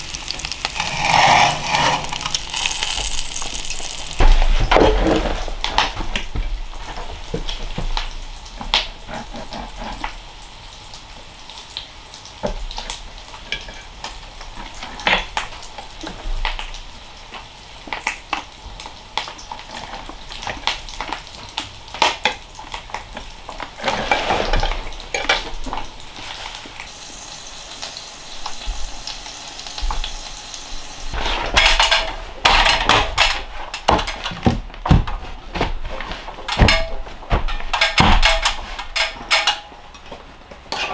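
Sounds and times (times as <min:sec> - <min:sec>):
knife and fork scraping on plate: 0:00.8 - 0:02.4.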